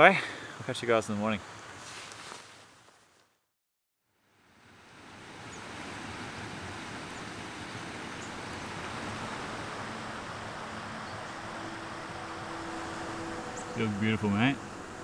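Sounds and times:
river water running: 4.1s - 15.0s
rain hissing: 5.1s - 15.0s.

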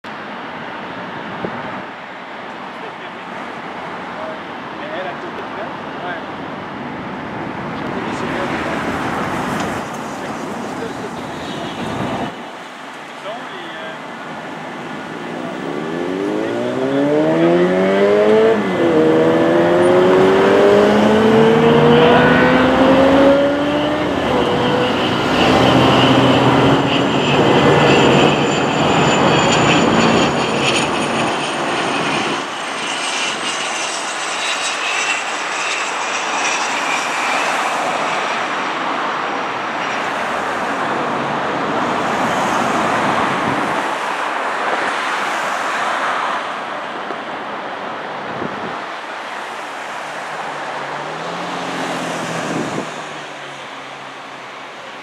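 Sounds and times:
high jet whine: 0.1s - 45.0s, 46.3s - 55.0s
jet roaring overhead: 0.1s - 55.0s
vehicle engine revving: 15.2s - 30.2s.

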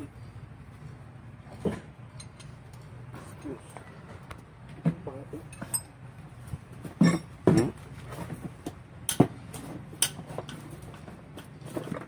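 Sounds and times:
wrench clinking on engine block: 2.1s - 2.6s, 5.5s - 6.0s.

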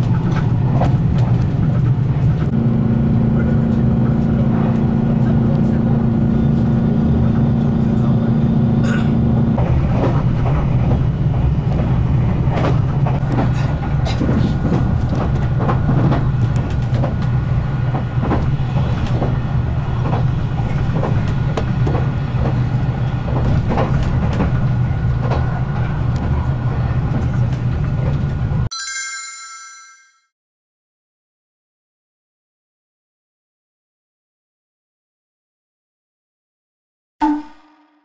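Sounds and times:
train interior rumble: 0.0s - 28.7s
bright chime tone: 28.7s - 30.3s.

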